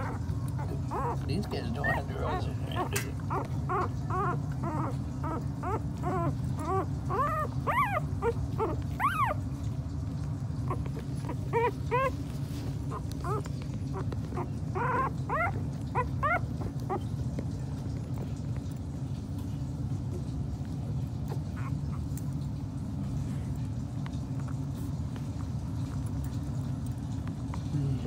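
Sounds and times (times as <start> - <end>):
puppies squeaking and whimpering: 0.0 - 19.4, 20.0 - 23.0
steady low hum: 0.0 - 28.0.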